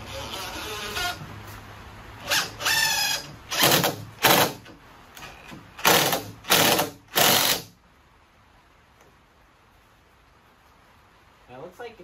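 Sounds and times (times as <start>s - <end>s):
impact driver driving screw: 2.2s - 4.7s, 5.8s - 7.7s.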